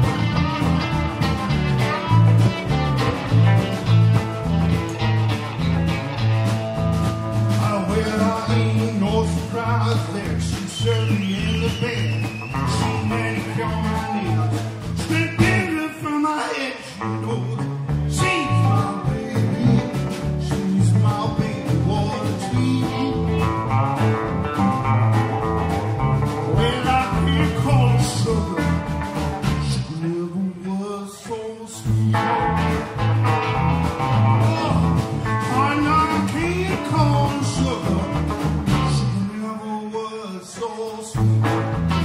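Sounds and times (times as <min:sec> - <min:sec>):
electric guitar bent notes: 0:00.0 - 0:07.9, 0:31.9 - 0:39.2
blues band playing: 0:00.0 - 0:42.0.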